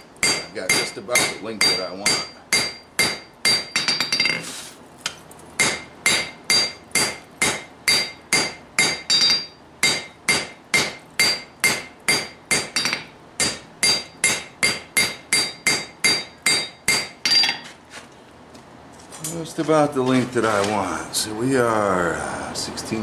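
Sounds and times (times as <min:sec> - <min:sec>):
hammer striking metal on anvil: 0:00.2 - 0:04.4, 0:05.6 - 0:17.6.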